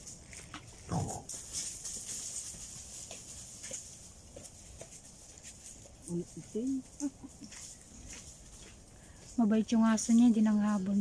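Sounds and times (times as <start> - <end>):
faint ticks and rustles: 0.0 - 11.0
wild boar grunt: 0.8 - 1.4.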